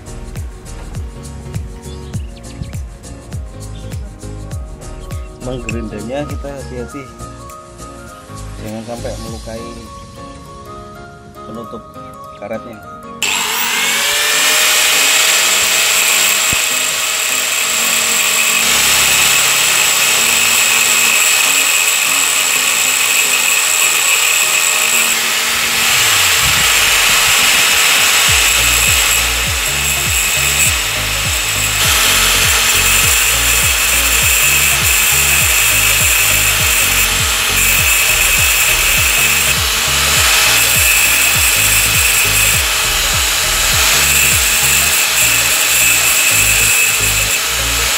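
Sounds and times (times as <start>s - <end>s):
angle grinder whining: 13.2s - 47.9s.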